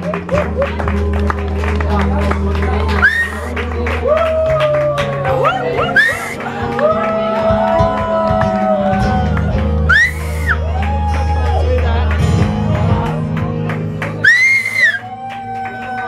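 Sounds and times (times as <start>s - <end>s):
person singing long notes: 0.0s - 9.3s
high whoops: 2.9s - 9.3s, 9.9s - 11.7s, 14.2s - 16.0s.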